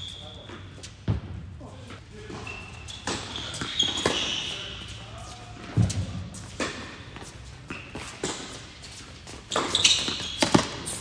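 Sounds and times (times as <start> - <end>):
sneaker squeak: 0.0 - 1.2, 2.2 - 11.0
racket striking ball: 5.8 - 7.0
ball bouncing: 9.5 - 11.0.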